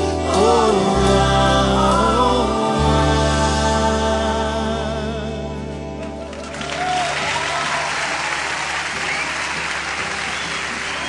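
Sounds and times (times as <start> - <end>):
audience applause and cheering: 6.0 - 11.0.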